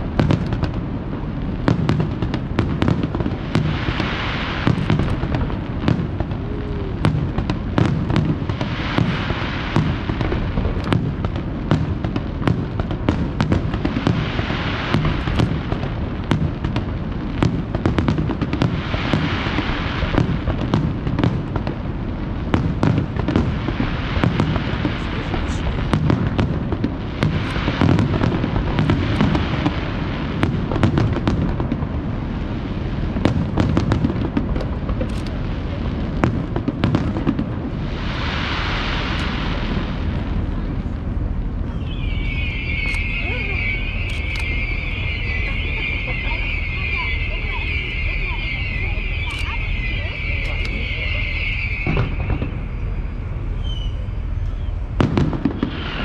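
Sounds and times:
hissing crackle of fireworks: 0.0 - 56.0
firework shells bursting: 1.6 - 21.8, 41.6 - 56.0.

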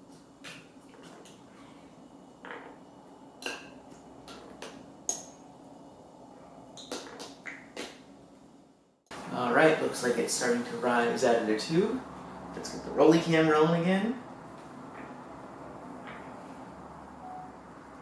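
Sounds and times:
faint steady hum: 0.0 - 18.0.

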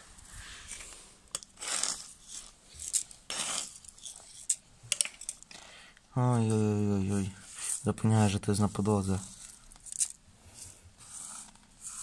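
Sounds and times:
grain scraped off concrete: 0.6 - 4.5.

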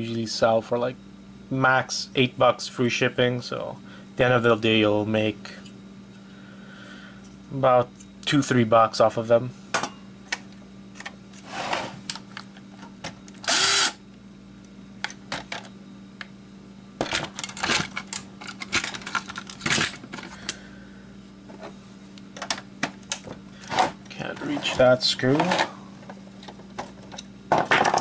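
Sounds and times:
cordless drill bursts: 13.5 - 14.0
plastic parts and tools clattering: 17.0 - 20.4, 22.4 - 25.7, 26.4 - 28.0.

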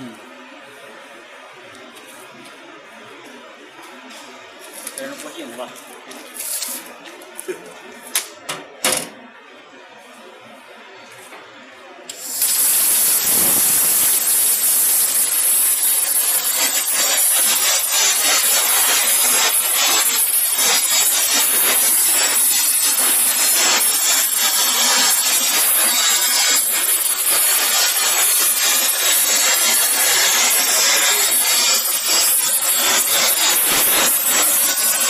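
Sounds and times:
plasma torch hissing and crackling: 4.7 - 7.6, 12.1 - 35.0.

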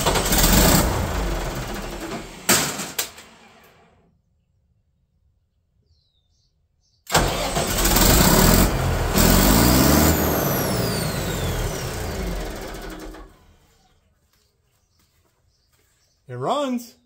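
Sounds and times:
diesel generator engine running: 0.0 - 3.7, 7.1 - 13.9.

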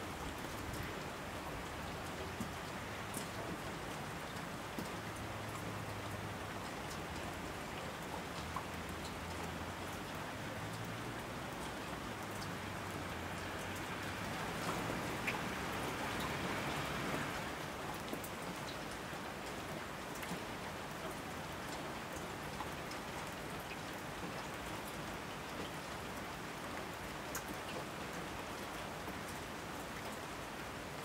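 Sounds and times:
steady rain hiss: 0.0 - 31.0
raindrops ticking: 1.6 - 25.8.

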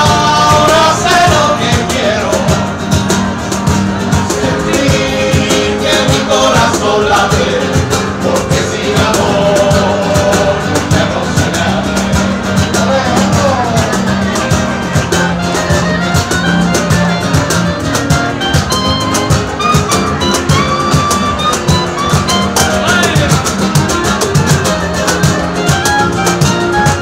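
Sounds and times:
acoustic guitars strumming: 0.0 - 27.0
clarinet melody: 13.5 - 27.0.

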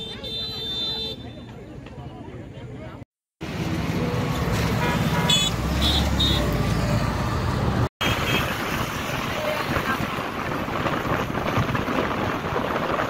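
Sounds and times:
road traffic rumbling past: 3.4 - 13.0.

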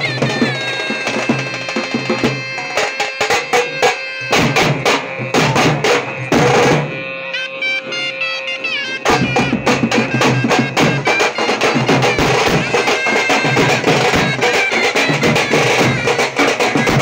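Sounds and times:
metal-shelled drums beaten: 0.0 - 17.0
shrill wind instrument: 0.0 - 17.0.

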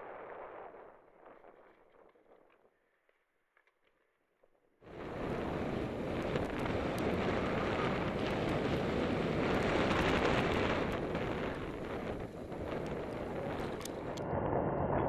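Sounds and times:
wind on microphone: 4.9 - 15.0.

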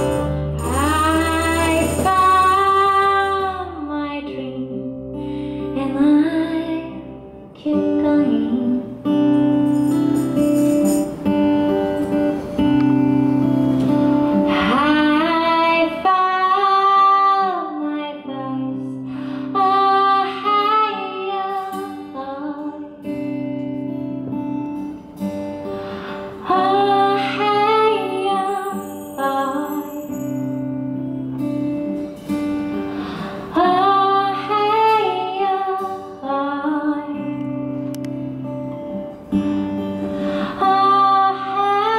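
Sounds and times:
bass guitar: 0.0 - 6.1
woman singing: 0.0 - 9.3, 14.4 - 23.4, 26.4 - 30.5, 33.4 - 37.8, 40.3 - 41.9
acoustic guitar: 0.0 - 41.9.

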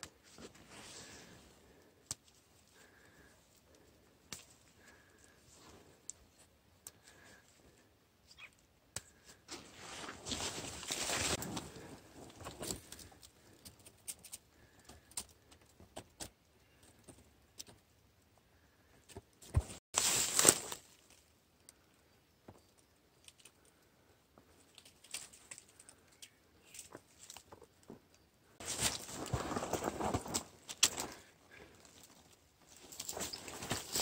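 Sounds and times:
leaves rustling: 9.5 - 12.7, 19.9 - 21.2, 28.6 - 31.7
footsteps in dry leaves: 9.7 - 11.8, 20.0 - 21.0.

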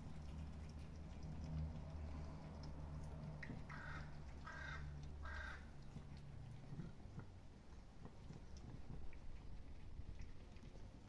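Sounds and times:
faint crow cawing: 3.7 - 5.7.

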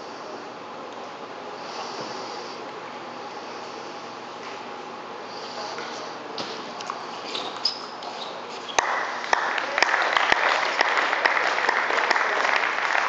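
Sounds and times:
applause: 8.8 - 13.0.

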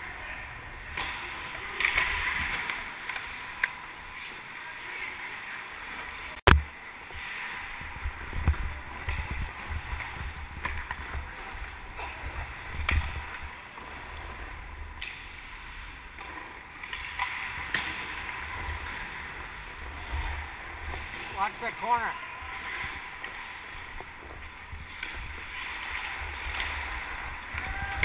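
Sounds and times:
skate blades scraping ice: 7.0 - 28.0.

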